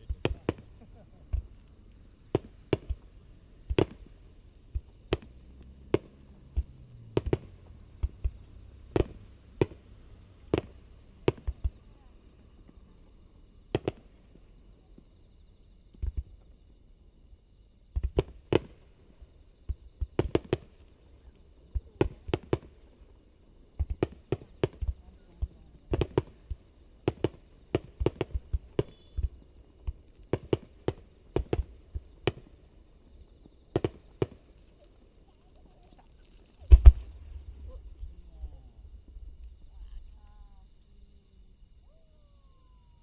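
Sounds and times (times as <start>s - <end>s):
distant fireworks bangs: 0.0s - 1.6s, 2.3s - 11.9s, 13.7s - 14.2s, 19.7s - 20.8s, 21.7s - 22.9s, 23.7s - 32.7s, 33.4s - 34.4s, 36.6s - 39.4s
high insect trill: 0.0s - 43.0s.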